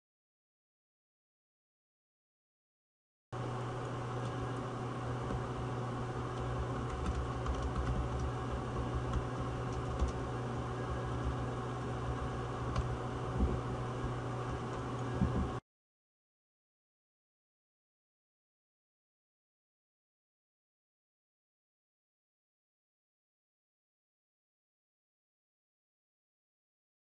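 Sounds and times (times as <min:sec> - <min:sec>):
steady low hum: 0:03.4 - 0:15.6.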